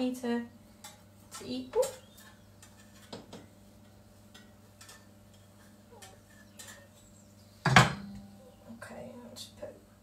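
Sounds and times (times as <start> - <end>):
metal spatula scraping pan: 0.8 - 3.6, 4.3 - 7.2
cookware clatter: 4.3 - 8.2.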